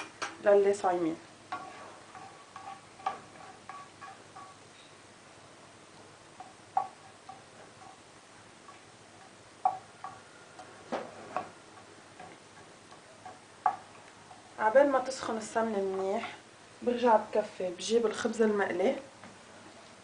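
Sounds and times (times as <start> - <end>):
wooden spoon tapping a frying pan: 0.0 - 0.4, 1.5 - 5.0, 6.3 - 14.4.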